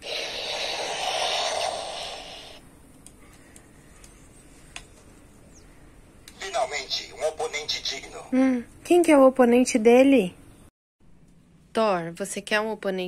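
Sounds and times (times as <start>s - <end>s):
toy speaker hissing burst: 0.0s - 2.6s.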